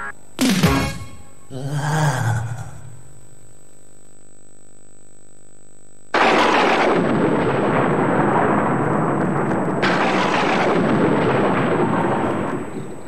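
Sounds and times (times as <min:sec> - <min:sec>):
thunderclap rumbling: 0:06.2 - 0:13.0.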